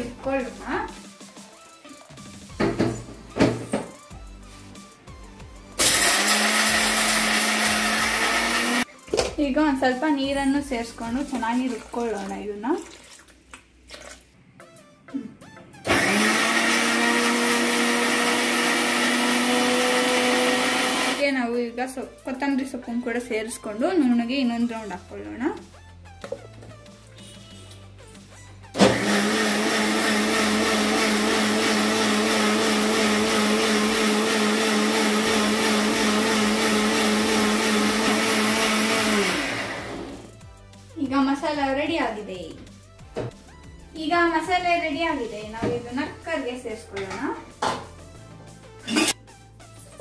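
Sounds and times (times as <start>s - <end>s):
electric mixer grinder motor: 5.8s - 8.9s, 15.9s - 21.2s, 28.8s - 40.3s.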